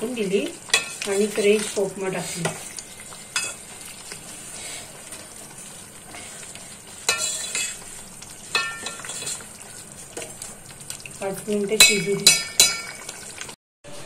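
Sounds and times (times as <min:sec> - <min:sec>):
curry simmering and bubbling: 0:00.0 - 0:13.6
ladle stirring thick curry: 0:00.4 - 0:13.6
ladle clinking against pot: 0:07.1 - 0:07.8, 0:08.5 - 0:09.4, 0:11.8 - 0:13.1.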